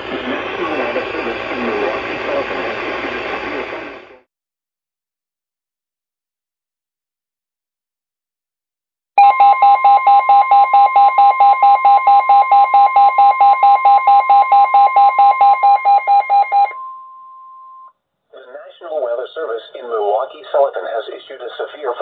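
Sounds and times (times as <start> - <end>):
loud pulsing beep: 9.2 - 17.9
steady alarm tone: 9.2 - 17.9.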